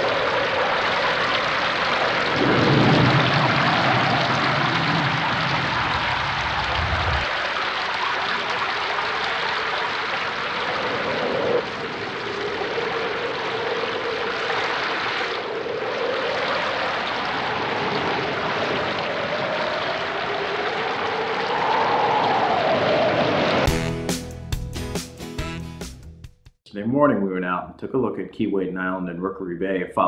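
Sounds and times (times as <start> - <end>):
howling wind: 0.0 - 23.7.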